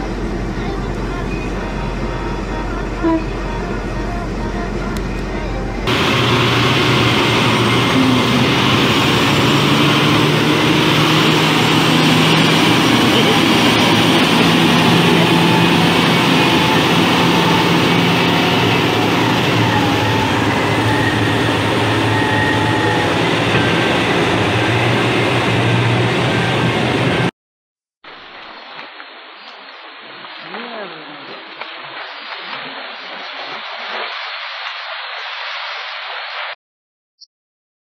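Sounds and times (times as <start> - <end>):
truck diesel engine running: 0.0 - 27.3.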